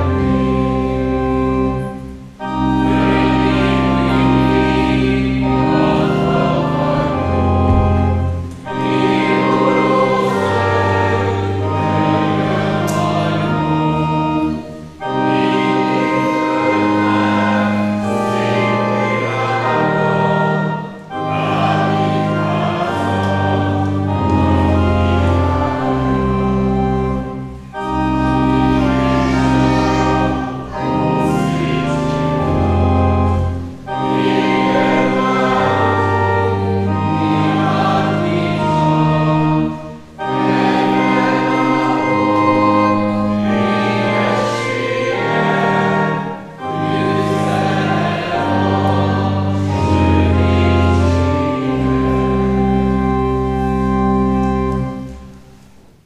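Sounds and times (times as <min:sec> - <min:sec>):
congregation singing a hymn: 0:00.0 - 0:56.0
organ accompaniment: 0:00.0 - 0:56.0.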